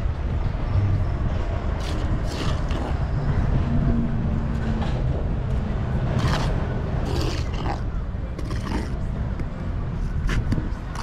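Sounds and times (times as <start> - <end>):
trowel scraping mortar: 1.8 - 3.0, 6.2 - 7.8.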